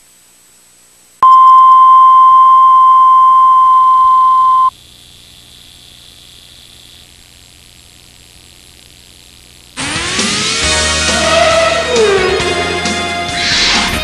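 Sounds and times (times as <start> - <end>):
faint tape hiss: 0.0 - 9.8
steady test tone: 1.2 - 4.7.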